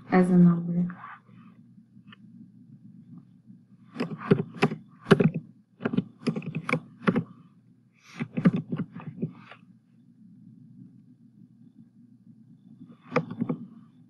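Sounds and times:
steady low hum: 0:00.0 - 0:14.0
keyboard typing clicks: 0:03.9 - 0:07.3, 0:13.0 - 0:13.7.

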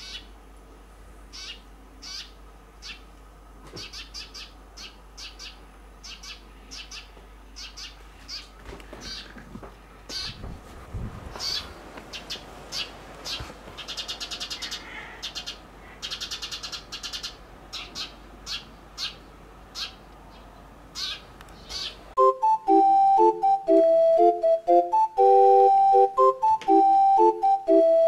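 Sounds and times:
small bird chirping: 0:00.0 - 0:00.3, 0:01.3 - 0:03.1, 0:03.8 - 0:08.5, 0:11.3 - 0:22.0.

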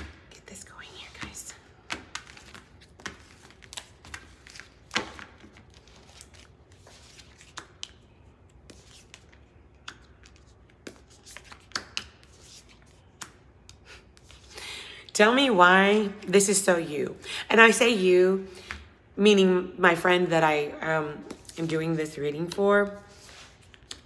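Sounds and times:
cards being shuffled: 0:01.2 - 0:13.4.

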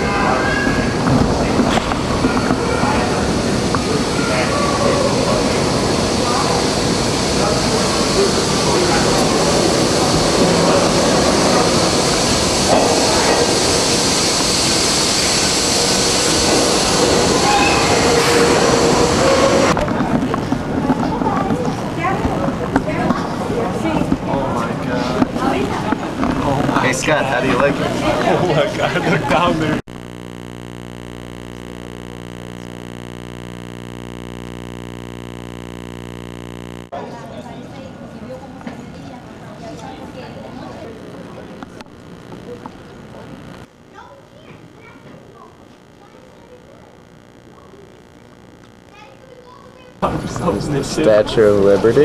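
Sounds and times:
subway train rumble: 0:00.0 - 0:26.8
electrical hum: 0:00.0 - 0:37.0, 0:38.2 - 0:52.0.

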